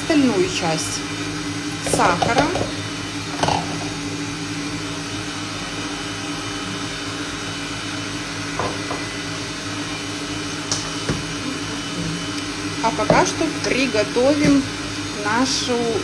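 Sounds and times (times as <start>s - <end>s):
stand mixer humming: 0.0s - 16.0s.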